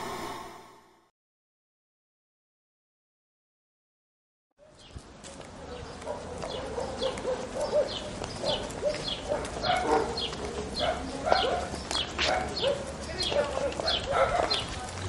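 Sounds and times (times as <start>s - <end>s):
birds chirping: 4.6s - 15.0s
low bird calls: 5.6s - 15.0s.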